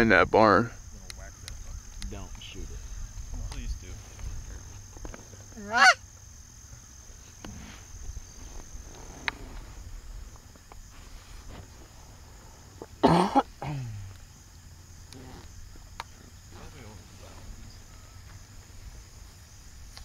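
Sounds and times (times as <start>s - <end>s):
goose honking: 5.6s - 6.0s.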